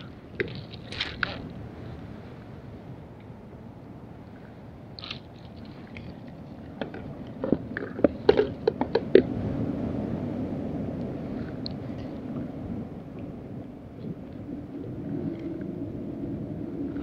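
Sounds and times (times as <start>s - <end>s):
wind and water rumble: 0.0s - 17.0s.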